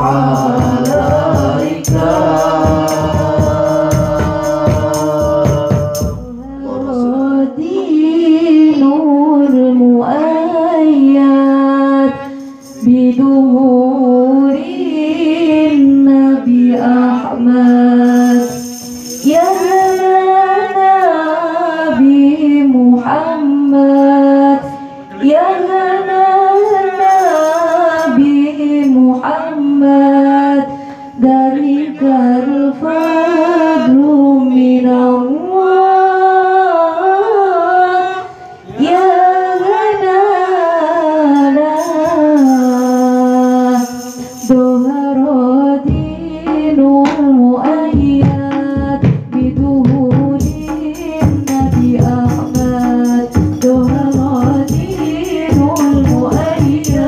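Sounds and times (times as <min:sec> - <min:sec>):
frame drums and bass beat: 0:00.0 - 0:06.5, 0:45.9 - 0:57.0
woman singing into a microphone: 0:00.0 - 0:57.0.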